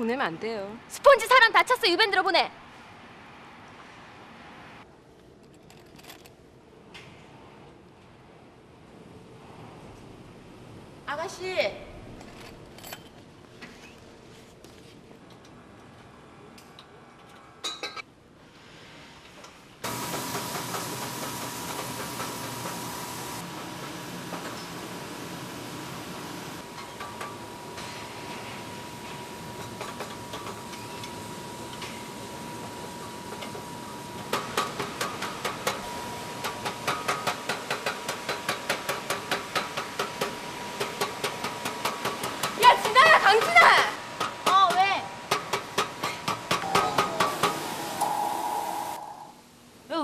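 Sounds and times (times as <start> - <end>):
gas torch hissing: 46.6 - 49.3.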